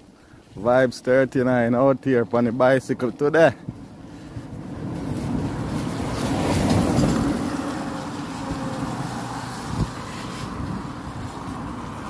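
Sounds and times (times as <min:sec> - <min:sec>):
car passing on wet road: 0:03.7 - 0:12.0.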